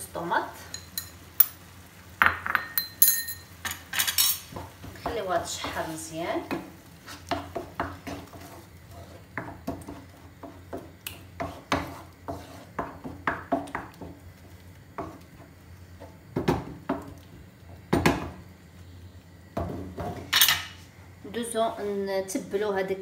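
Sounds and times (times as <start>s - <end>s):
spoon scraping a frying pan: 2.6s - 14.2s.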